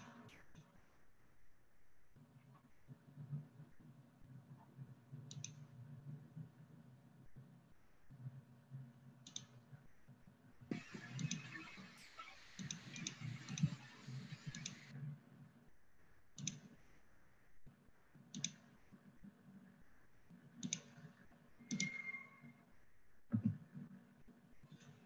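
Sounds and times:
faint low background noise: 0.0s - 25.0s
computer mouse clicks: 5.3s - 5.6s, 9.2s - 9.6s, 10.7s - 11.6s, 12.2s - 14.9s, 16.4s - 16.7s, 18.3s - 18.7s, 20.6s - 22.2s.

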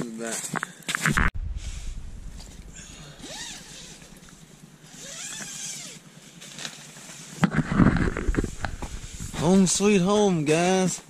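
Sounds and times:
motor vehicle running: 1.4s - 5.0s, 6.1s - 10.1s.

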